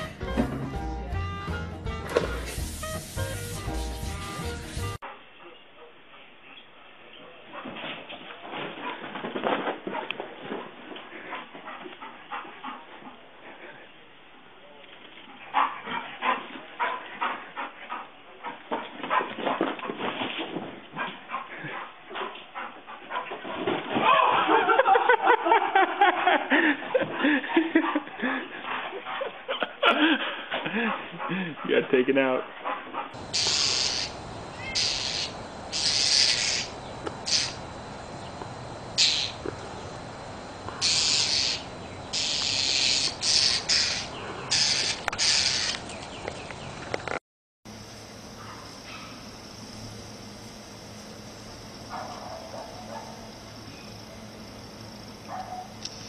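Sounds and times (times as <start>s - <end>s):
person laughing: 24.2s - 28.6s, 29.2s - 31.7s
bird harsh scold calls: 33.2s - 37.7s, 39.0s - 39.5s, 40.8s - 46.0s.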